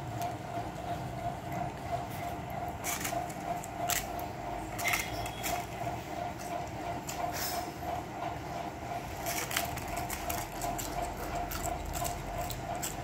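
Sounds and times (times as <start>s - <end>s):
pulsing mechanical hum: 0.0s - 13.0s
dog crunching crisp snacks: 9.2s - 13.0s.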